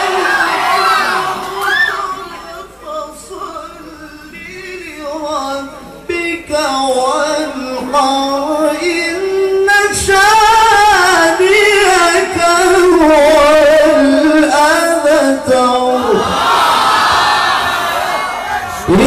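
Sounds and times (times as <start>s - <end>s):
audience calling out: 0.0s - 2.6s
man reciting in sung voice: 1.4s - 16.4s, 18.8s - 19.0s.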